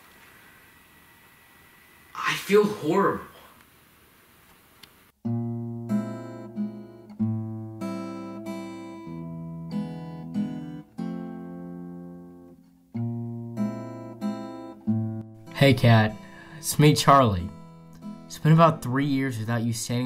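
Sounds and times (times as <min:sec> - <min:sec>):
acoustic guitar picking chords: 0:05.2 - 0:20.0.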